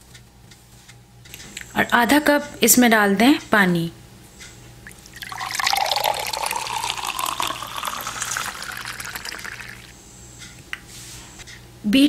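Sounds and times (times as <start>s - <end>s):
water pouring into bowl: 4.9s - 9.9s.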